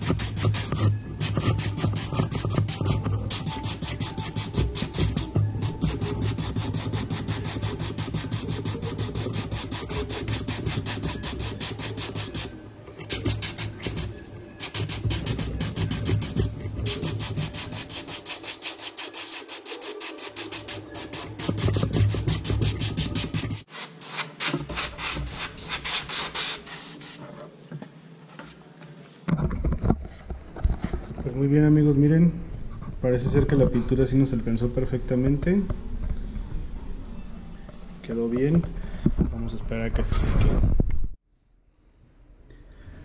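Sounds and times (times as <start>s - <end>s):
airbrush air hiss: 0.0s - 27.2s.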